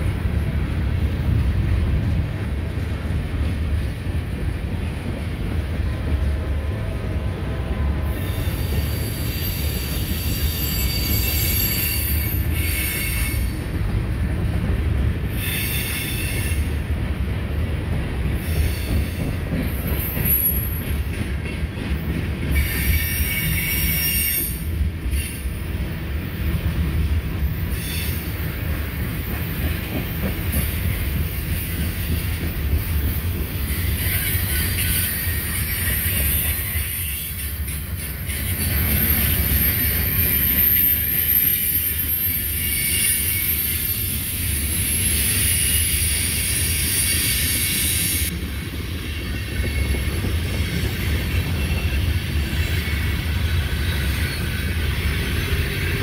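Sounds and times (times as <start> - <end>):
train wheels rumbling on rail: 0.0 - 56.0
wheel squeal: 8.2 - 13.4, 38.3 - 48.3.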